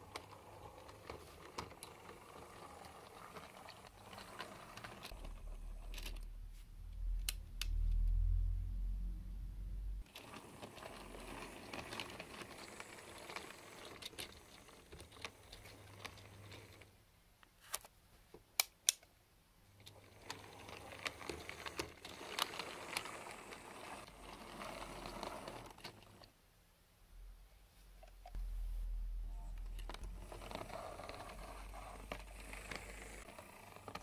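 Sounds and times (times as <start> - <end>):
model train rattling on track: 10.2 - 16.8.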